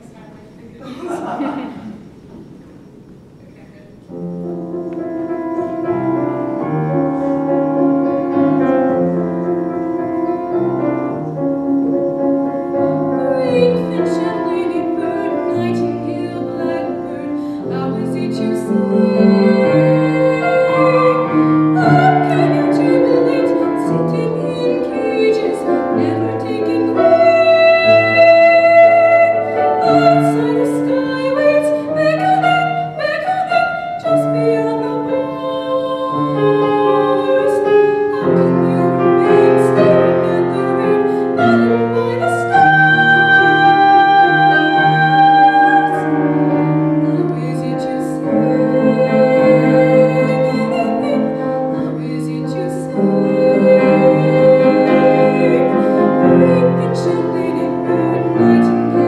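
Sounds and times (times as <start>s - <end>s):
grand piano playing: 1.9s - 59.0s
woman singing with vibrato: 13.0s - 59.0s.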